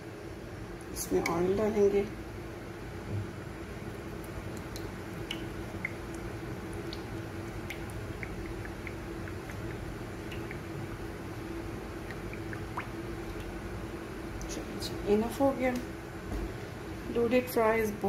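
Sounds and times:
oil glugging and dripping: 3.7 - 14.5.

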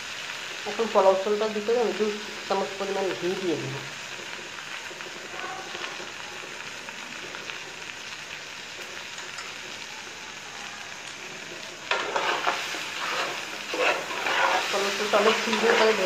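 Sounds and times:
rice sizzling in a pot: 0.0 - 16.0
metal spoon scraping a pot: 11.9 - 16.0.

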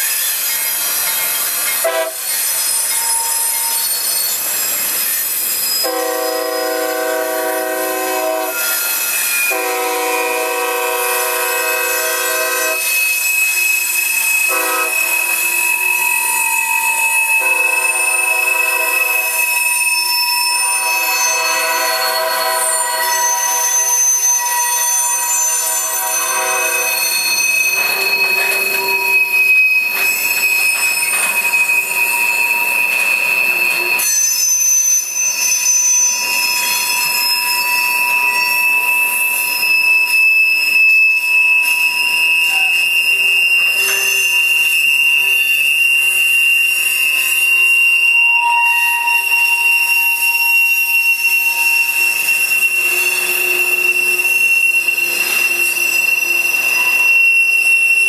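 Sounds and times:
rumble of rolling freight cars: 0.0 - 58.0
train wheels squealing on rails: 0.0 - 58.0.

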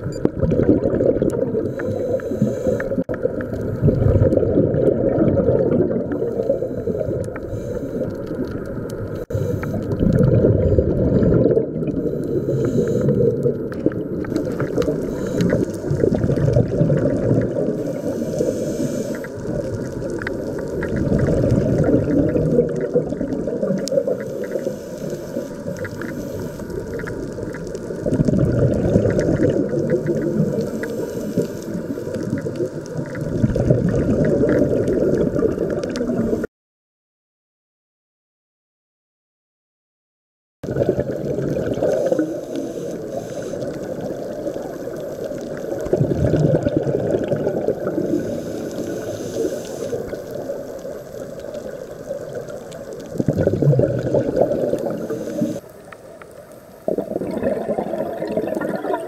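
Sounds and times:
underwater bubbles gurgling: 0.0 - 36.5, 40.6 - 59.0
faint clicks: 12.2 - 15.8.

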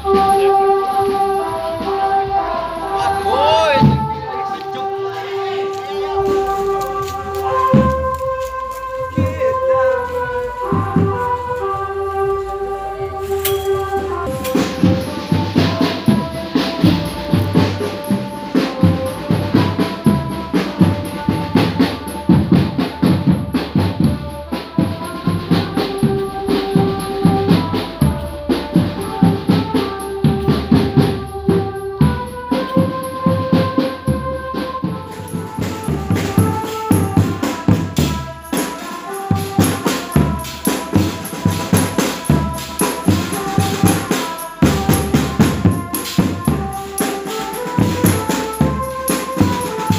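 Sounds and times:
held melody notes: 0.0 - 49.9
street percussion band drumming: 0.0 - 49.9
tambourine jingle: 13.4 - 22.8, 29.8 - 49.9.

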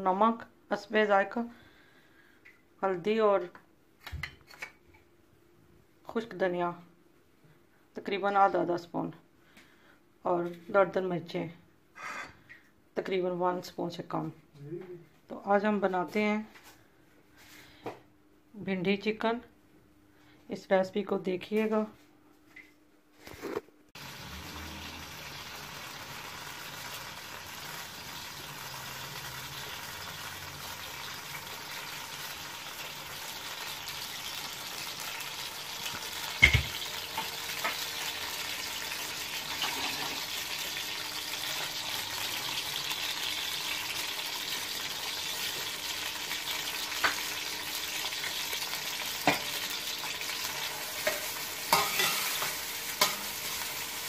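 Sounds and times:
metal spatula scraping a pan: 12.0 - 12.4, 50.9 - 53.8
onions sizzling in hot oil: 24.0 - 54.0.

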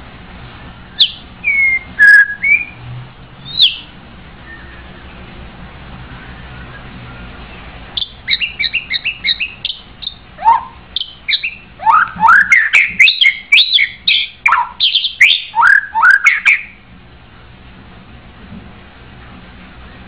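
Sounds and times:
bird singing: 0.8 - 2.8, 3.4 - 5.3, 6.1 - 16.8.

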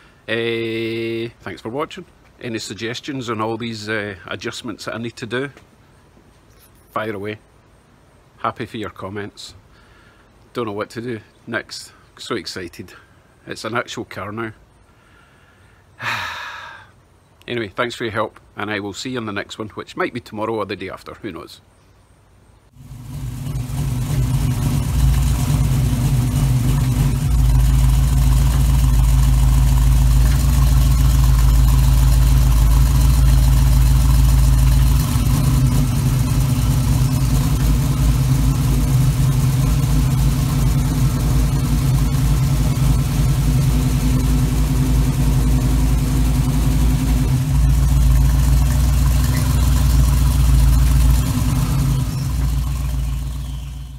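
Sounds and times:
car engine idling: 22.7 - 53.9.

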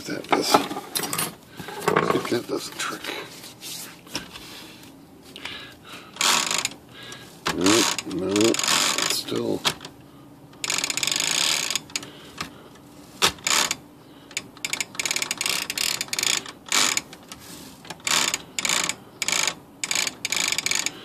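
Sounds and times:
typewriter mechanism rapid clicking: 7.5 - 9.8, 14.6 - 17.1, 17.9 - 21.0.

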